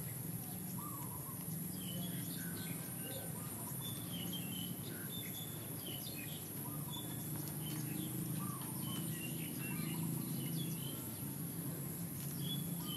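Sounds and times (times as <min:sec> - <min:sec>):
small birds chirping: 0:00.0 - 0:12.9.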